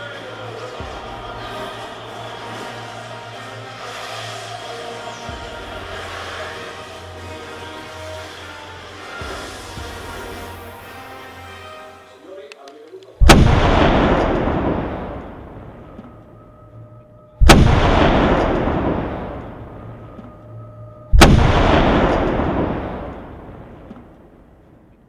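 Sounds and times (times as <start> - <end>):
loud explosive booms: 13.2 - 15.9, 17.4 - 20.0, 21.1 - 24.5.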